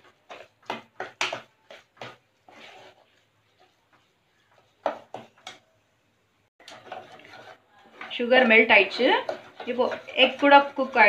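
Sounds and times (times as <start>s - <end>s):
metal spoon scraping saucepan: 0.0s - 3.8s, 6.6s - 11.0s.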